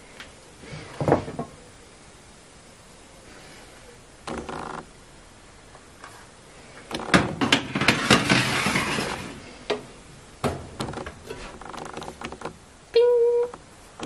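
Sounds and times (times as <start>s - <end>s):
metal baking tray scraping: 7.4s - 9.6s.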